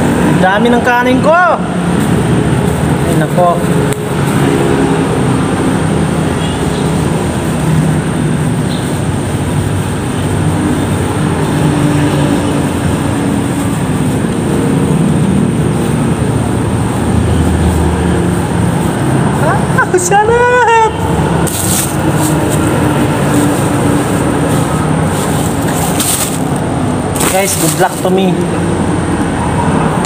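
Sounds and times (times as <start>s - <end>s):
plastic bag crinkling: 21.5s - 22.7s, 24.4s - 28.2s.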